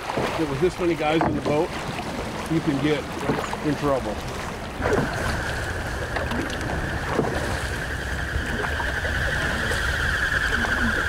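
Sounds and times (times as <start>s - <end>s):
wind rumble on microphone: 0.0s - 11.0s
whistling of duck wings in flight: 4.8s - 11.0s
fainter higher whistle: 6.7s - 11.0s.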